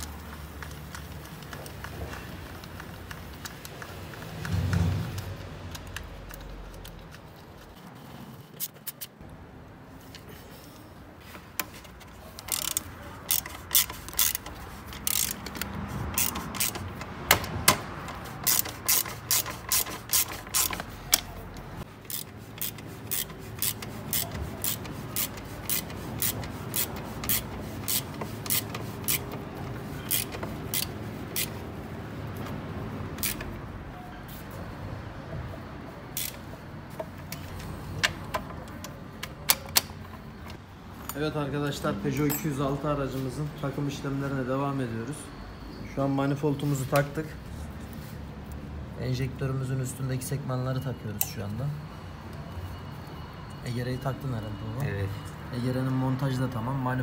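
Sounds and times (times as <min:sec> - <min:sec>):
ratchet wrench clicking: 0:12.3 - 0:31.7, 0:33.2 - 0:33.6, 0:36.1 - 0:40.2.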